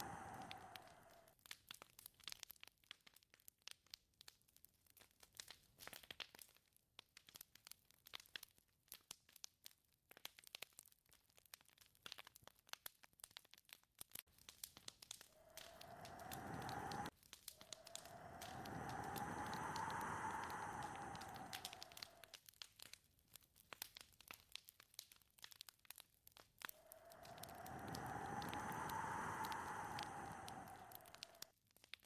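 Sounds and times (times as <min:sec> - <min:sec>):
crackling and ticking clicks: 0:00.0 - 0:32.0
wind gust: 0:15.4 - 0:22.2, 0:26.8 - 0:31.4.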